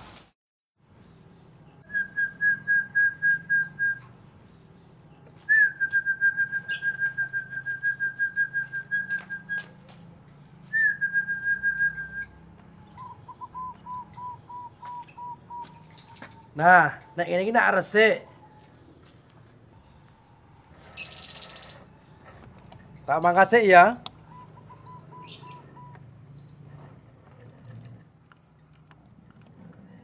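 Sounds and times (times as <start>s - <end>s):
bird whistled notes: 1.8s - 4.1s, 5.5s - 17.2s, 24.3s - 26.5s
sharp high bird chirps: 5.6s - 8.2s, 9.5s - 17.7s, 19.9s - 26.6s.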